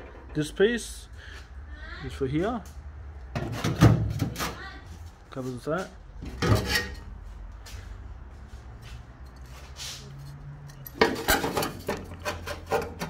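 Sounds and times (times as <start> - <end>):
sheet steel knocking and scraping: 3.3 - 4.7, 6.2 - 7.2, 10.7 - 13.0.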